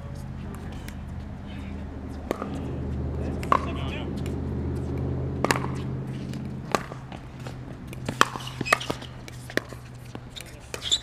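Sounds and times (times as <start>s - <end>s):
steady low hum: 0.0s - 10.8s
pickleball ball pocks off paddles: 5.4s - 10.9s.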